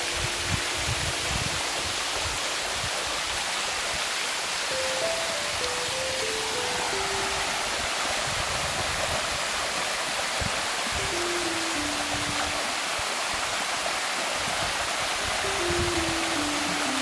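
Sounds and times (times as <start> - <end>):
soft background music notes: 0.0 - 2.2, 4.7 - 8.8, 10.8 - 13.3, 15.4 - 17.0
water rushing down cascade: 0.0 - 17.0.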